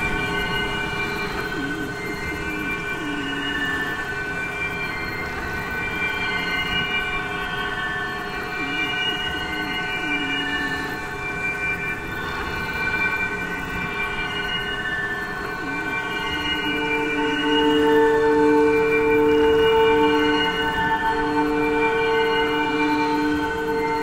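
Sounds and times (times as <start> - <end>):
sustained droning chord: 0.0 - 24.0.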